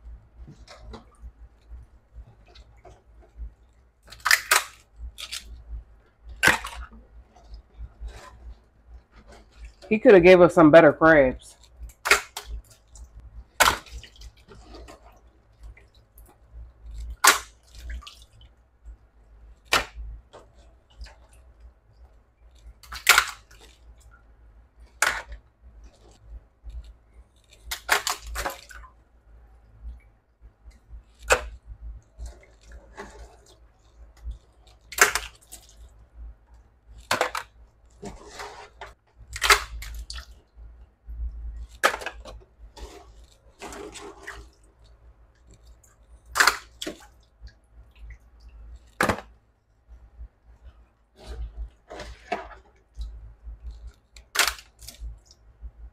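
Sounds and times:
crab shells cracking: 4.0 - 5.5, 39.3 - 40.2, 54.2 - 55.1.

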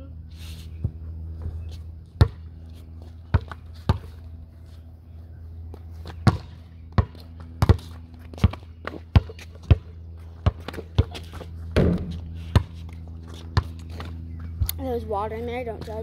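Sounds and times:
basketball dribbling: 6.0 - 14.1.

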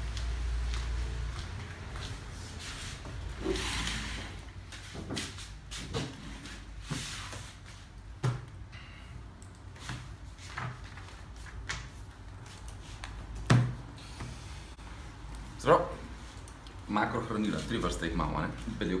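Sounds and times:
knocks and rustles at a desk: 4.8 - 7.5, 8.2 - 8.5, 13.1 - 14.3.

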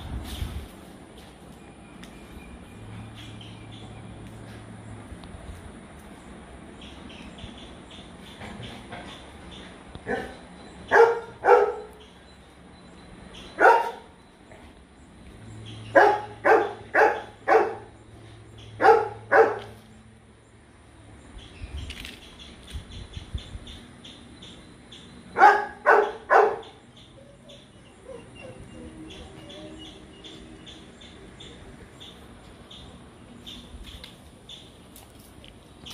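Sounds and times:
dog barking: 10.0 - 11.9, 13.6 - 14.1, 16.0 - 17.9, 18.8 - 19.8, 25.4 - 26.8.

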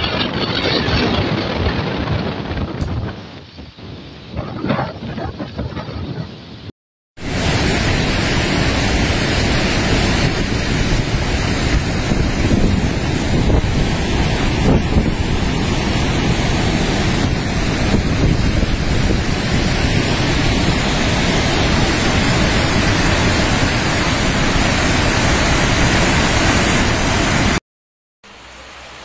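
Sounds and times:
floodwater rushing: 7.2 - 27.6.

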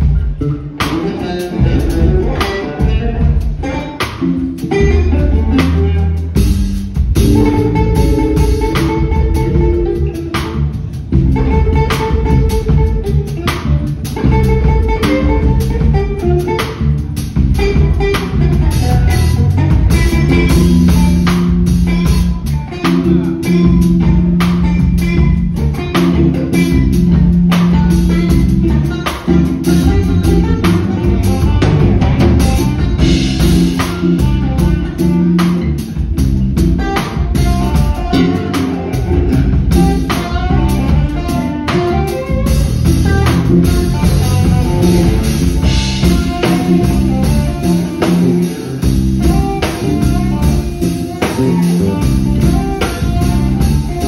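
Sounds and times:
drum kit steady beat: 0.0 - 54.0
electric basses playing: 0.0 - 54.0.

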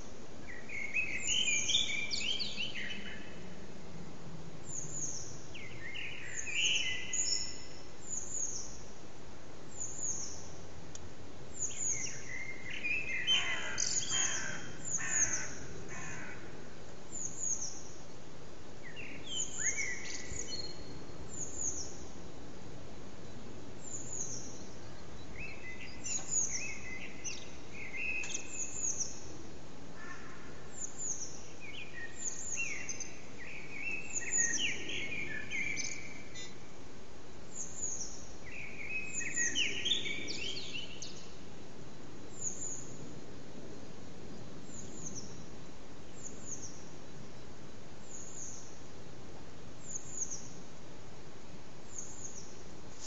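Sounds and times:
blackbird singing: 0.5 - 3.4, 4.7 - 8.8, 11.6 - 16.4, 18.8 - 22.0, 23.8 - 29.3, 30.1 - 36.6, 37.6 - 41.4.

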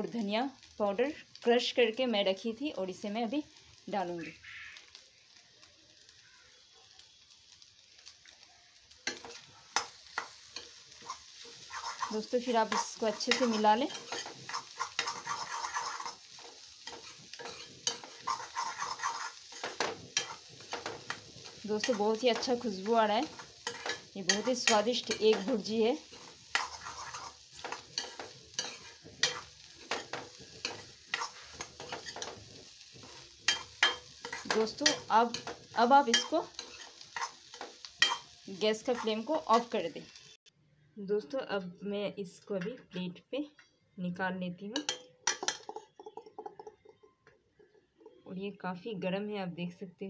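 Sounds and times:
eggs sizzling in a pan: 0.0 - 40.5, 44.7 - 48.6
steel spoon scraping a pan: 9.0 - 40.3, 44.8 - 46.7.

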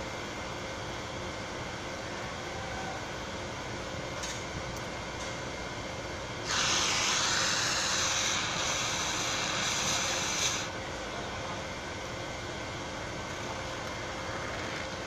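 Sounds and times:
torch hissing: 6.4 - 10.7.

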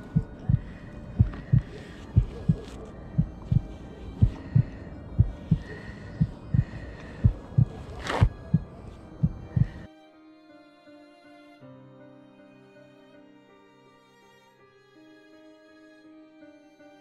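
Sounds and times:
heartbeat thumps: 0.0 - 9.9.

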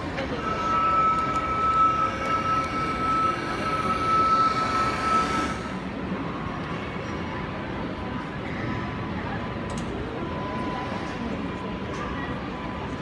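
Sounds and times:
model train whining: 0.0 - 6.8.

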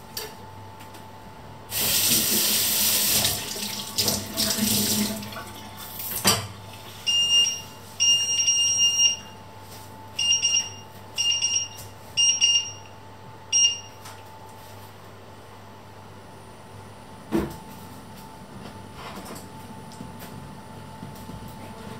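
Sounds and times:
tap running water: 1.7 - 6.5.

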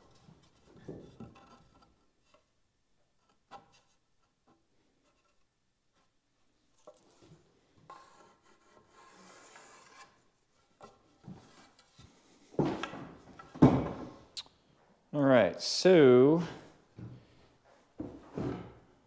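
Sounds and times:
wood rubbing on wood: 6.8 - 13.4
loud wooden thumps: 12.6 - 14.2.

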